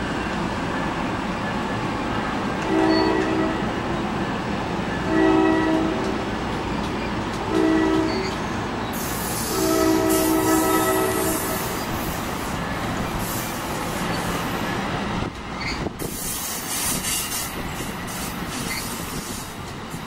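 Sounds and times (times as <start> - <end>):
train rumbling: 0.0 - 20.0
train air horn blasts: 2.6 - 3.7, 5.1 - 6.2, 7.5 - 8.4, 9.0 - 11.9
hiss: 9.0 - 14.6, 16.0 - 19.6.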